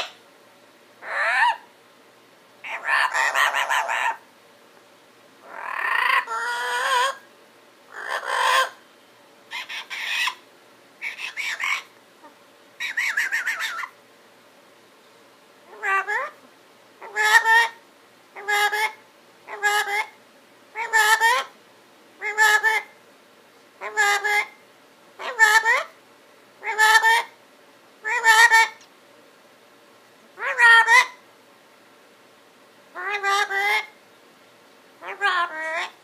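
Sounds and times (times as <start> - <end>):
parrot mumbling chatter: 1.0 - 1.6, 2.6 - 4.2, 5.4 - 7.2, 7.9 - 8.8, 9.5 - 10.4, 11.0 - 13.9, 15.7 - 16.4, 17.0 - 17.8, 18.4 - 20.2, 20.8 - 21.5, 22.2 - 22.9, 23.8 - 24.6, 25.2 - 25.9, 26.6 - 27.3, 28.0 - 28.8, 30.4 - 31.2, 33.0 - 34.0, 35.0 - 36.0.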